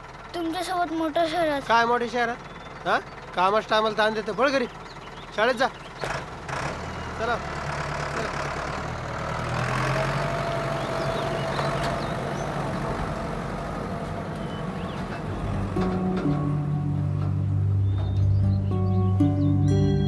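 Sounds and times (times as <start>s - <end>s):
pickup truck engine running: 0.0s - 20.0s
music: 15.6s - 20.0s.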